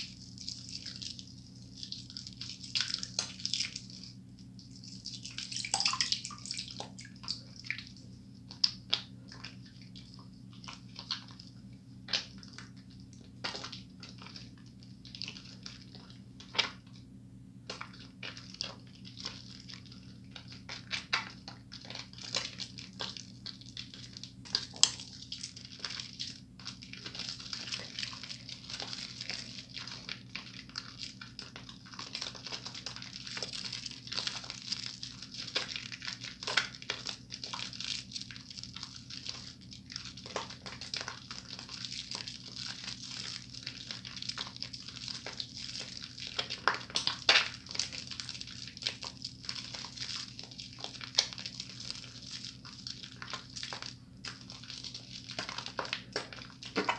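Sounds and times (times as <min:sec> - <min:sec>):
soapy hands squelching: 0:00.0 - 0:16.8.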